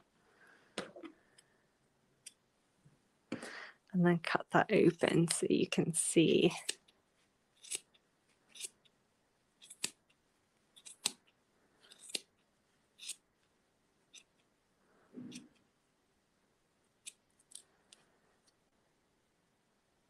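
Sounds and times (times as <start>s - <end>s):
scissors snipping yarn: 6.5s - 6.8s, 7.6s - 7.9s, 9.6s - 10.0s, 10.7s - 11.2s, 11.9s - 12.3s, 13.0s - 13.2s.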